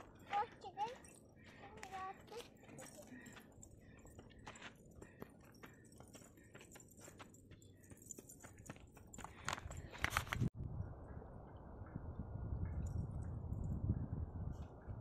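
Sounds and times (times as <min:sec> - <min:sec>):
faint footsteps on dirt road: 0:00.0 - 0:10.6.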